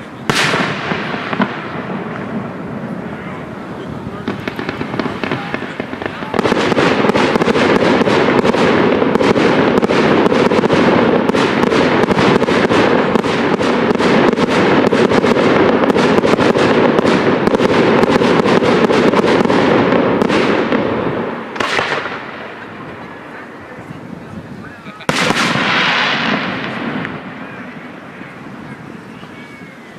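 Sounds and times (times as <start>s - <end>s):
fireworks cracking and crackling: 0.0s - 29.9s.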